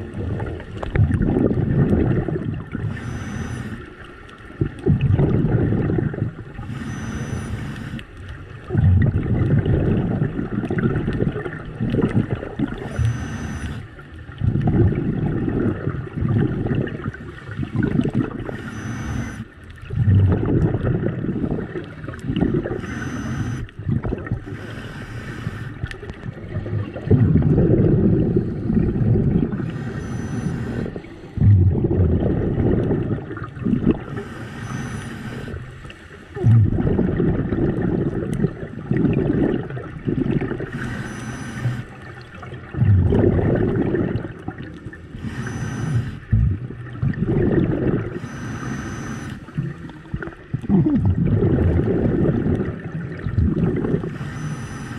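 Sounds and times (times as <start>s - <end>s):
exhaled air bubbling: 0.0s - 54.9s
regulator inhale hiss: 2.9s - 4.0s, 6.6s - 8.1s, 12.8s - 13.9s, 18.5s - 19.4s, 22.8s - 23.7s, 24.4s - 25.9s, 29.6s - 31.4s, 34.1s - 36.4s, 40.7s - 42.0s, 45.1s - 46.3s, 48.2s - 49.5s, 54.1s - 54.9s.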